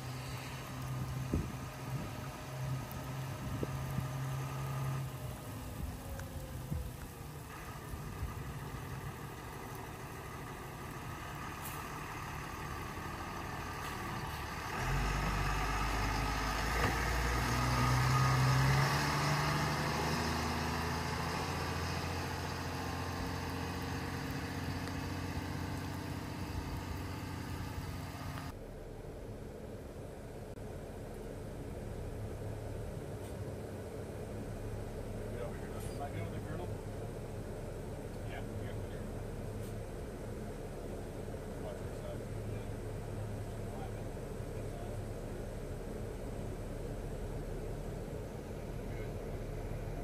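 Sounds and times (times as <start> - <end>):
tyres hissing on wet road: 0.0 - 28.6
quiet vehicle rumble: 0.0 - 50.0
truck engine hum: 0.0 - 50.0.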